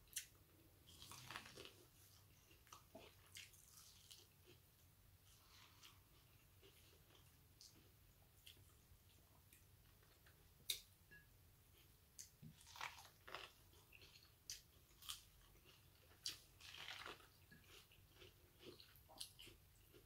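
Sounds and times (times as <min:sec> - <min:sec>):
chewing corn on the cob: 0:12.2 - 0:20.0.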